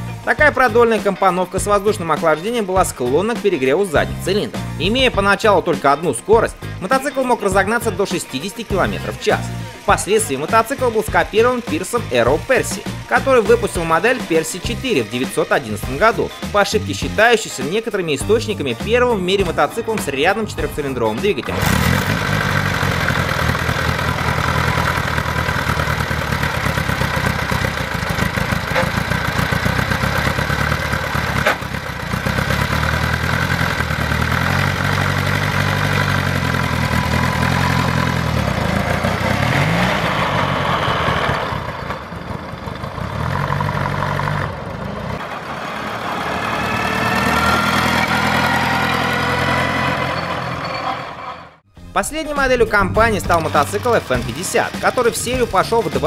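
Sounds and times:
motorcycle engine revving: 7.4s - 17.3s, 19.4s - 50.7s.

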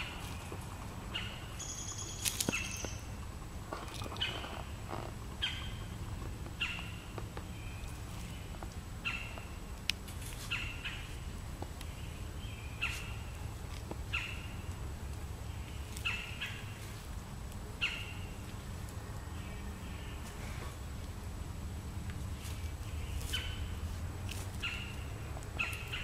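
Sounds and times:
low steady hum: 0.0s - 26.0s
high chirping animal calls: 1.1s - 3.2s.

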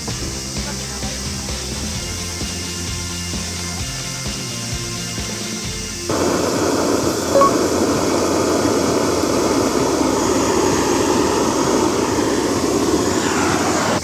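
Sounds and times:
gas torch flame rushing: 6.1s - 14.0s.

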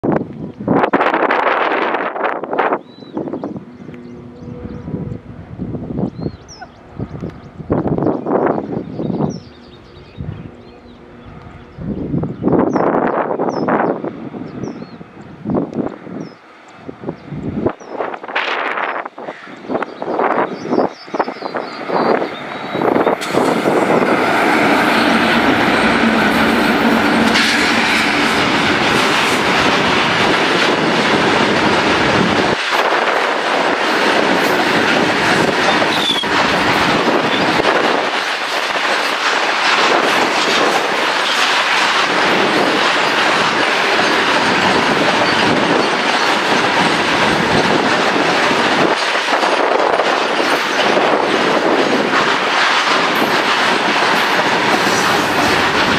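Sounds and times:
electric locomotive hum: 0.0s - 55.9s
train wheels clattering over rail joints: 20.6s - 55.9s
wheel squeal: 35.7s - 36.3s.

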